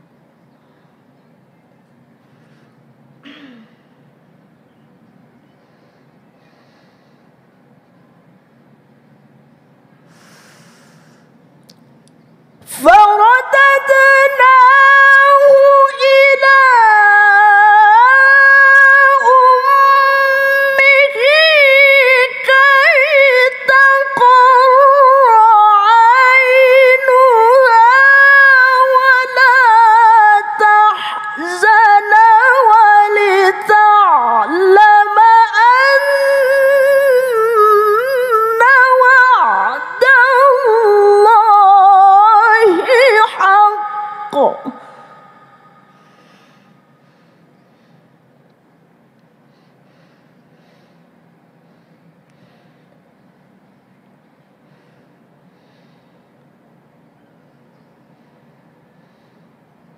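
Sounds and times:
woman reciting melodically: 12.6 - 46.3.

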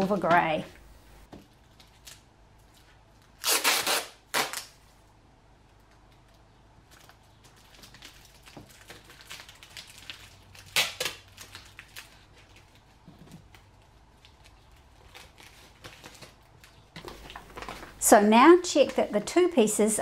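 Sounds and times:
packing tape being pulled out: 1.5 - 4.8, 6.9 - 18.0
plastic sheets crinkling: 6.0 - 19.7.

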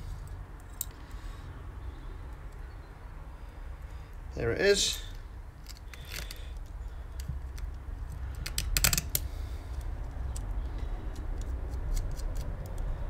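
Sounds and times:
metal parts clicking and tapping: 4.9 - 10.5.

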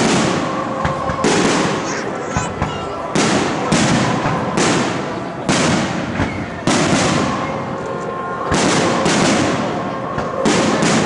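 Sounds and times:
fireworks bursting with echoes: 0.0 - 11.0.

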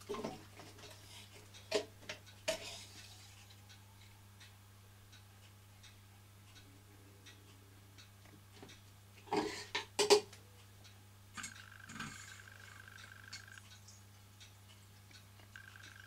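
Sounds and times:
faint scattered ticking: 0.1 - 16.0.

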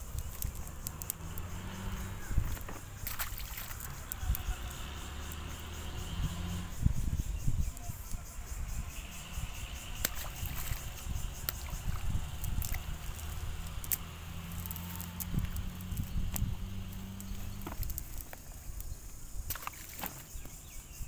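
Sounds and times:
wet netting rustling: 0.0 - 4.7, 10.0 - 18.9, 19.5 - 20.5
sharp clicks: 0.0 - 5.4.

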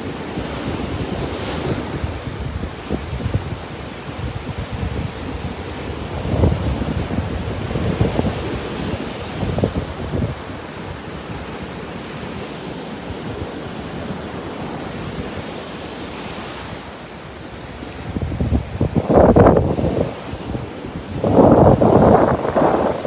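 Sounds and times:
surf breaking on sand: 0.0 - 23.0
wind buffeting microphone: 0.7 - 11.8, 17.7 - 23.0.

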